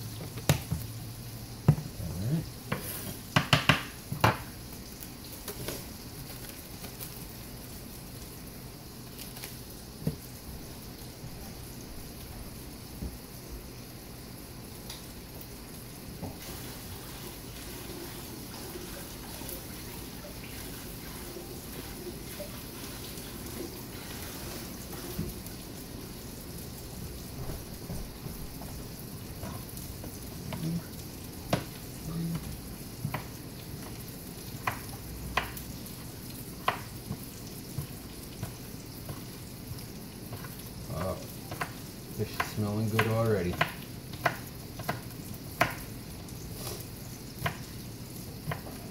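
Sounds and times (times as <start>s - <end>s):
fish sizzling in a pan: 0.0s - 48.9s.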